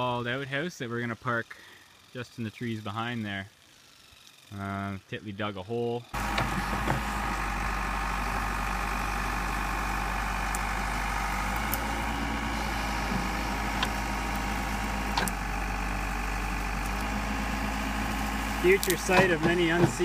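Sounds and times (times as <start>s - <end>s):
diesel engine idling: 6.2s - 20.0s.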